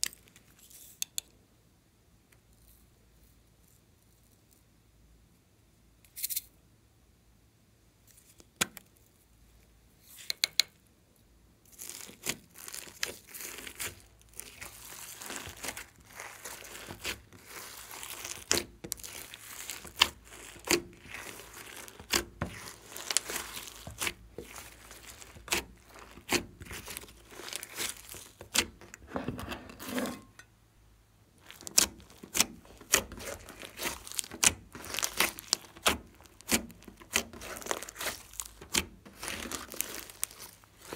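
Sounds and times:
sticky crackling and popping: 11.7 - 29.2, 31.4 - 40.9
hands squishing slime: 11.7 - 29.5, 31.4 - 40.9.

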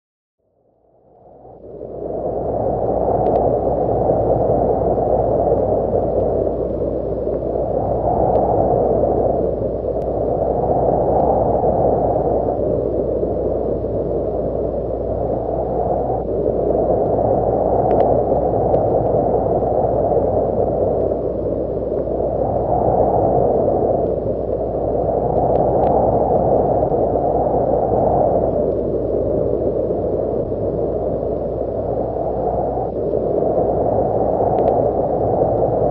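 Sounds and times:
faint clicks: 3.2 - 3.5, 17.8 - 18.9, 34.5 - 34.8.

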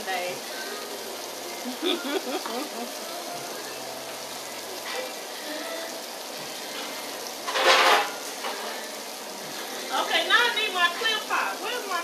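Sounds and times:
steady kitchen hiss: 0.0 - 12.0
dishes and rack clattering: 7.4 - 8.7.

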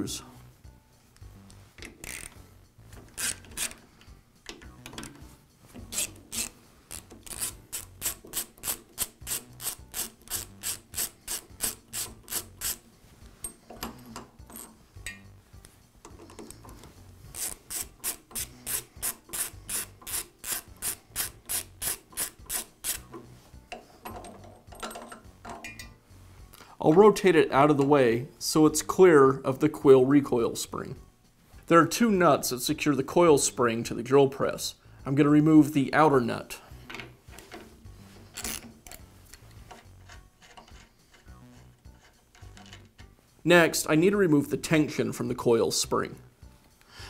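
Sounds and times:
ratcheting screwdriver clicking: 3.0 - 3.8, 5.9 - 12.8.

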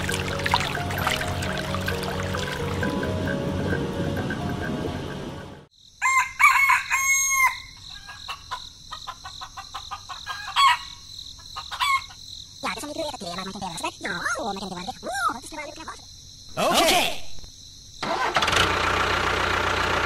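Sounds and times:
high insect trill: 0.0 - 18.0
rooster crowing: 6.0 - 8.4, 10.2 - 11.0
chicken clucks and chirps: 7.4 - 12.2.

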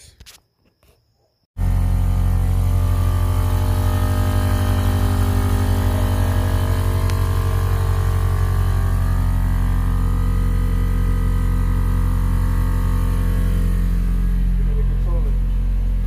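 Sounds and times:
air compressor buzzing: 1.6 - 16.0.

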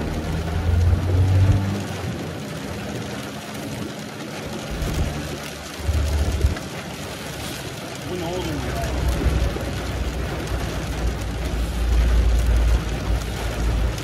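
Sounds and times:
car engine from inside cabin: 0.0 - 2.5, 3.9 - 7.0.

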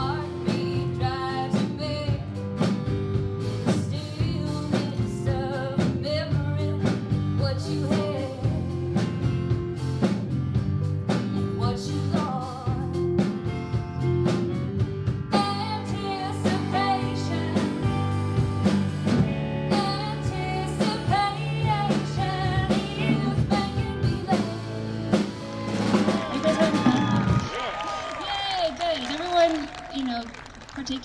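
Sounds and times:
woman singing: 0.0 - 2.4, 3.6 - 8.9, 11.5 - 13.2, 15.3 - 18.2, 19.7 - 25.1
acoustic guitar: 0.0 - 26.3
electric guitar: 0.0 - 27.5
drum kit: 0.0 - 27.6.

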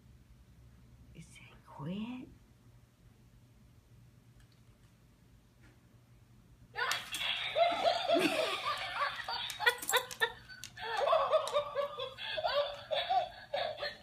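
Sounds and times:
toy chuckling through speaker: 6.8 - 14.0.

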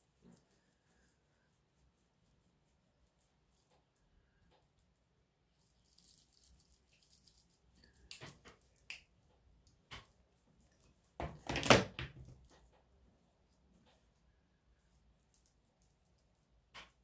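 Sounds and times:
brush swishing over skin: 0.0 - 4.0.

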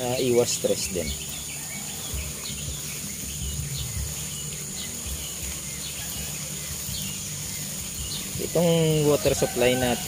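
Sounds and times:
bird chirping: 0.0 - 10.0
insects droning: 0.0 - 10.0
low rumble: 2.2 - 5.6.

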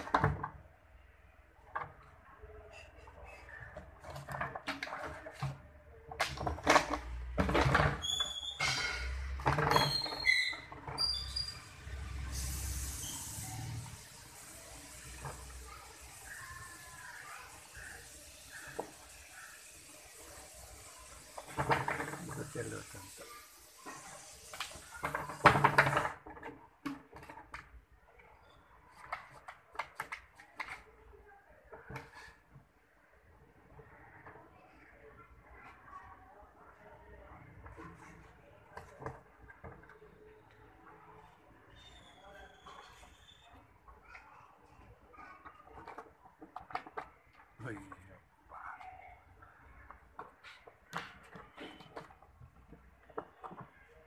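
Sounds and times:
plastic basin scraping on concrete: 3.4 - 13.1, 21.4 - 22.8.

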